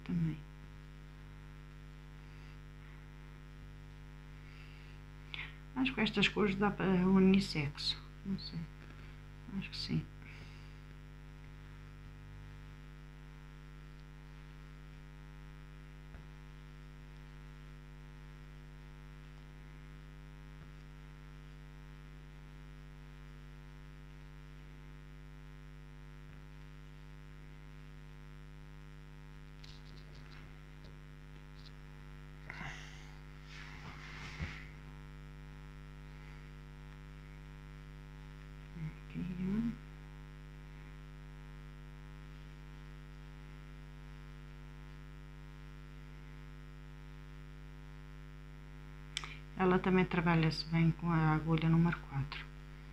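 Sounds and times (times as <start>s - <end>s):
electrical mains hum: 0.0s - 52.9s
faint rustles: 29.6s - 35.0s.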